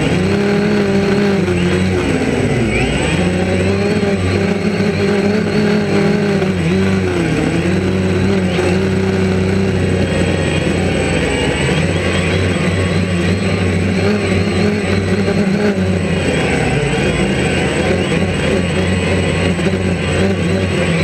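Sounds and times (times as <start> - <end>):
drone propellers buzzing: 0.0 - 21.0.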